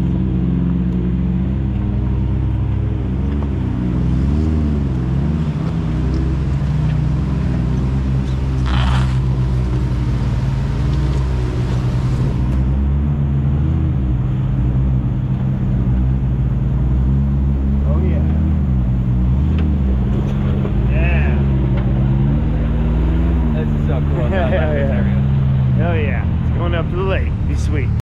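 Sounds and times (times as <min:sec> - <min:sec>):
engine revving: 0:00.0 - 0:28.0.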